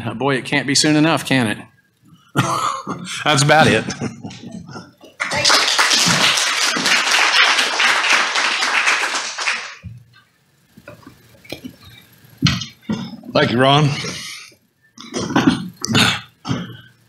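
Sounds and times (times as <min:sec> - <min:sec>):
congregation applauding: 0:05.0 - 0:09.9.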